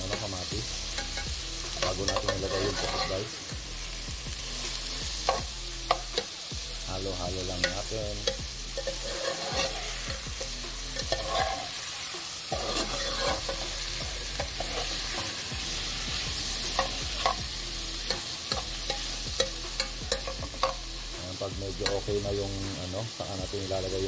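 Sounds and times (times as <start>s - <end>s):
vegetables sizzling in hot oil: 0.0s - 24.0s
spoon scraping metal pot: 2.1s - 3.3s, 7.6s - 10.1s, 11.0s - 11.7s, 12.5s - 13.7s.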